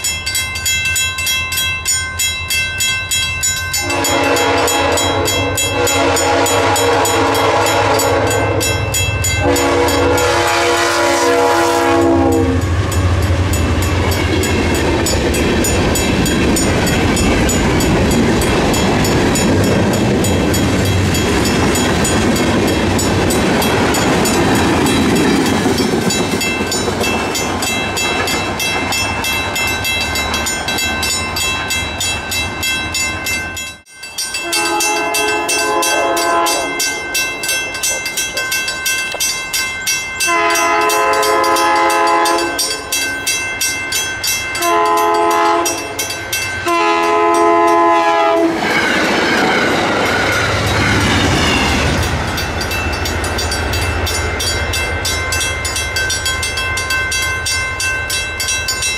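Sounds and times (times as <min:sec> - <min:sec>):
crossing bell ringing: 0:00.0 - 0:58.9
train wheels clacking on rails: 0:00.0 - 0:58.9
train rumble: 0:02.4 - 0:58.9
locomotive horn: 0:03.8 - 0:12.9, 0:34.4 - 0:36.9, 0:40.3 - 0:42.8, 0:44.6 - 0:45.9, 0:46.6 - 0:48.6.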